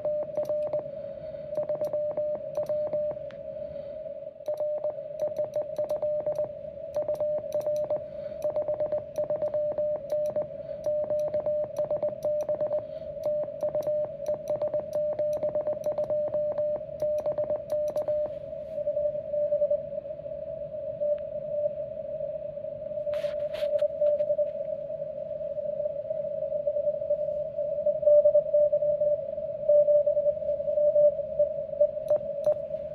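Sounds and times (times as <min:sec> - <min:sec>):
morse code beeps: 0:00.0 - 0:00.9, 0:01.6 - 0:03.2, 0:04.5 - 0:18.4.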